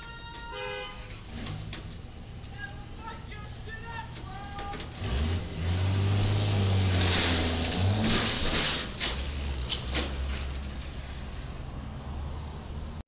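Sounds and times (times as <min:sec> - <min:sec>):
engine low hum: 0:00.9 - 0:13.0
vehicle scraping against bridge: 0:04.9 - 0:11.4.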